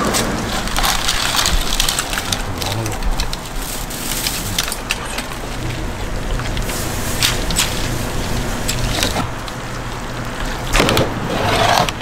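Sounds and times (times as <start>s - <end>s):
hot oil sizzling and crackling: 0.0s - 10.8s.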